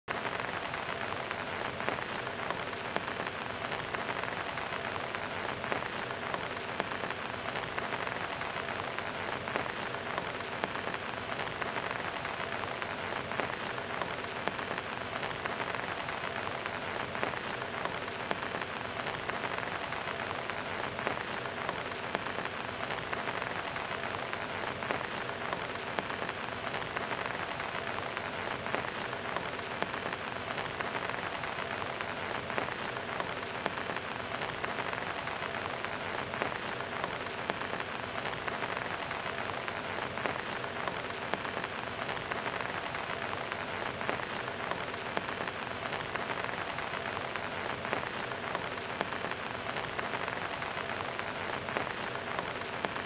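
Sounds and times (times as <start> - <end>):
heavy rain on hard surfaces: 0.0 - 53.0.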